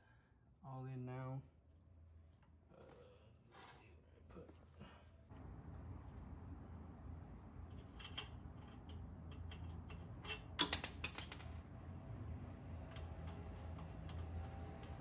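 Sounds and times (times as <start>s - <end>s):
faint low hum: 0.0s - 15.0s
metal tools clicking: 7.8s - 11.6s.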